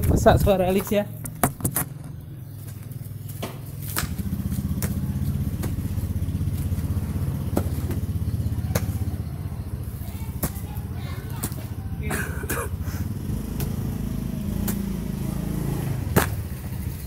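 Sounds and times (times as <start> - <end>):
engine running: 0.0 - 17.0
hoe chopping into soil: 16.1 - 16.4.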